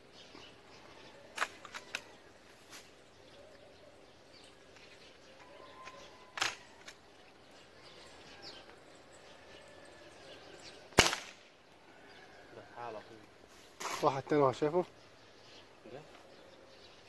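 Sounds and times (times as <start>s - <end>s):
faint bird chirps: 0.0s - 11.0s.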